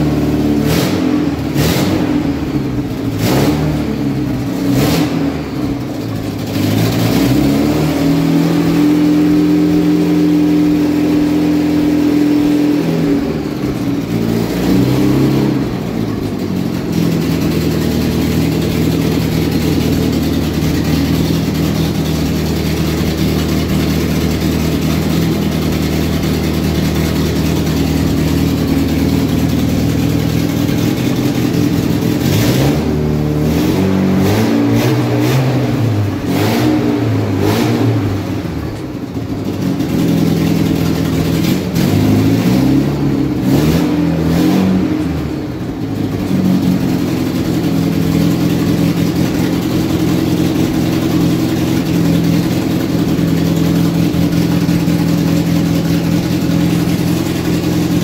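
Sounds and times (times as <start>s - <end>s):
car engine revving and idling: 0.0s - 58.0s.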